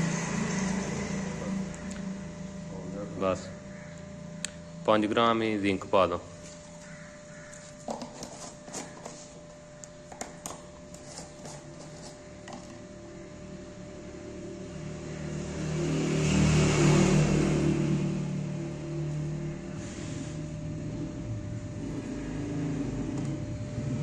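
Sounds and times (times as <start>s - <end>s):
engine: 0.0s - 6.2s, 10.1s - 24.0s.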